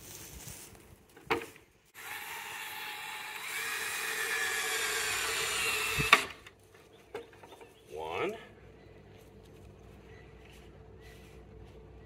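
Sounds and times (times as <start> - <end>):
screw driven through plywood: 2.0 - 6.4
cordless drill whining: 2.0 - 6.5.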